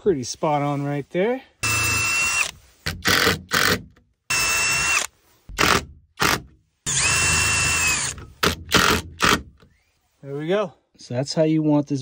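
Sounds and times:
drill trigger blips: 1.6 - 9.7
drill driving screws: 1.6 - 9.8.

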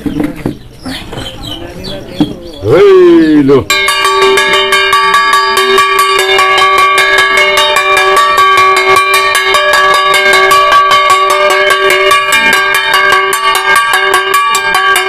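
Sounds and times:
metal percussion beaten fast: 3.6 - 15.0.

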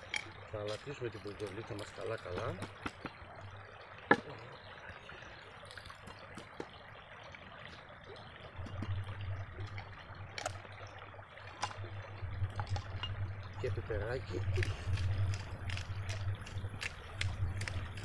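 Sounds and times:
river water running: 0.0 - 18.0
sharp clicks and ticks: 14.5 - 18.0.

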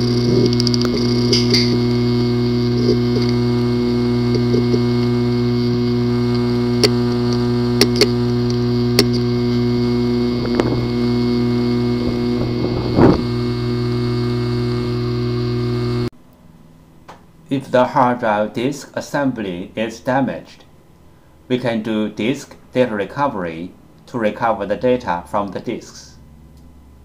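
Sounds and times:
hard drive clicking: 0.0 - 16.1
hard drive humming: 0.0 - 16.1.

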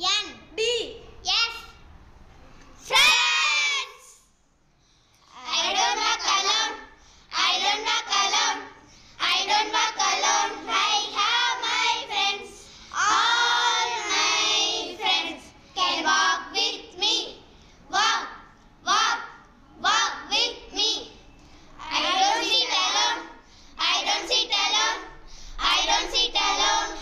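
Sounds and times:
girls singing in unison: 5.3 - 21.1, 21.8 - 27.0.

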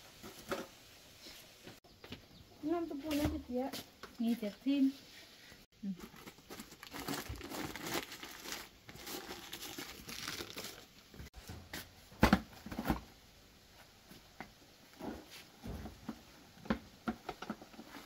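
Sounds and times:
paper wrapping crumpled by hand: 5.9 - 11.2.

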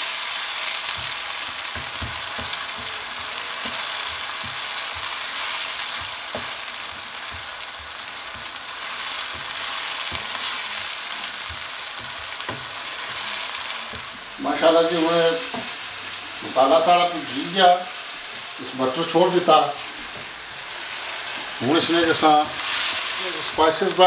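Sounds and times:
masala sizzling in hot oil: 0.0 - 24.0
wooden spatula knocking on pan: 0.6 - 14.2, 15.5 - 15.8.

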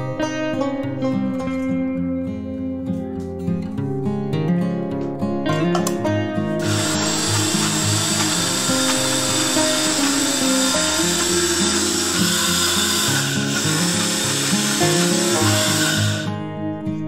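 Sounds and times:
background music: 0.0 - 17.0
mixer grinder motor running: 6.6 - 16.4.

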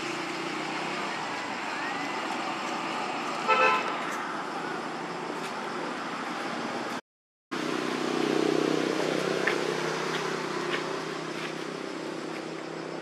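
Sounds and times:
outdoor background noise: 0.0 - 13.0
motor vehicle engine hum: 7.6 - 13.0.

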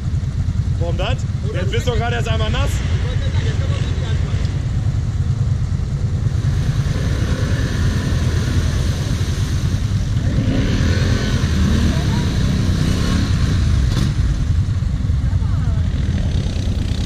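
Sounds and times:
atv engines rumbling: 0.0 - 17.0
voices calling out: 0.5 - 10.0, 10.9 - 13.9.

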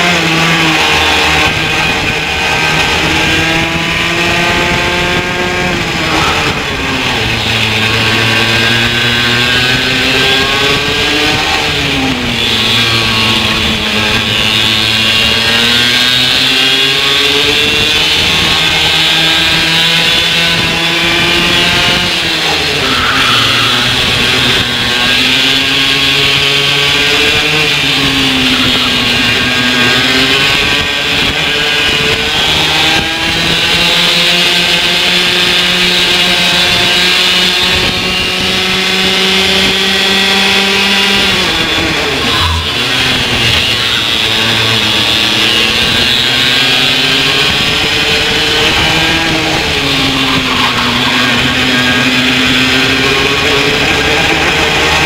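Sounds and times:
racing kart engine under load: 0.0 - 55.0.

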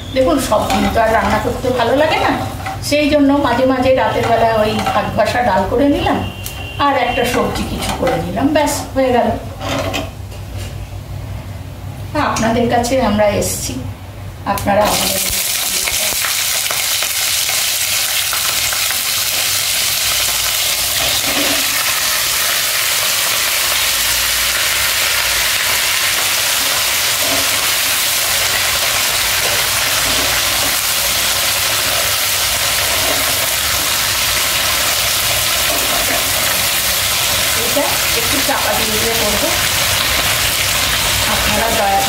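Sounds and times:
vegetables sizzling in hot oil: 0.0 - 6.1, 14.8 - 42.0
spatula stirring vegetables: 0.4 - 8.4, 25.3 - 42.0.

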